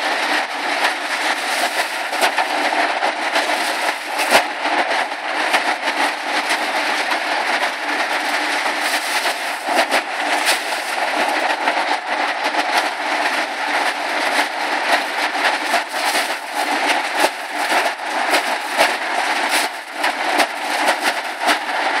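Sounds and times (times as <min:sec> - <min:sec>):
corn cobs clattering on metal: 0:01.0 - 0:04.5, 0:07.9 - 0:11.5, 0:12.6 - 0:21.7.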